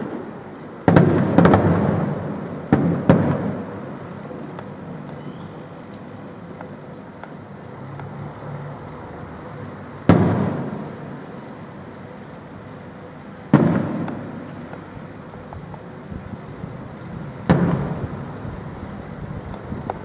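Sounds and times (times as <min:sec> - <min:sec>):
firework booms echoing: 0:00.8 - 0:03.8, 0:10.1 - 0:11.0, 0:13.5 - 0:14.5, 0:17.4 - 0:18.2.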